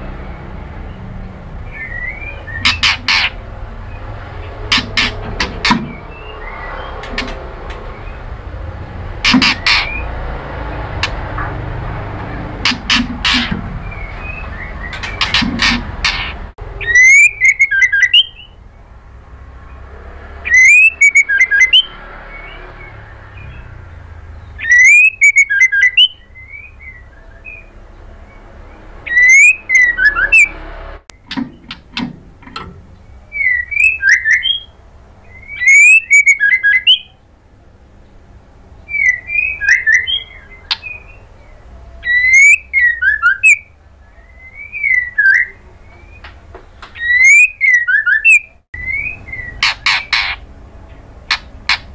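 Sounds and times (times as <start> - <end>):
bird singing whistled phrases: 1.7 - 3.0, 16.8 - 18.6, 20.4 - 23.7, 24.5 - 27.7, 29.1 - 30.5, 33.3 - 37.2, 38.9 - 41.3, 42.0 - 46.3, 47.0 - 50.3.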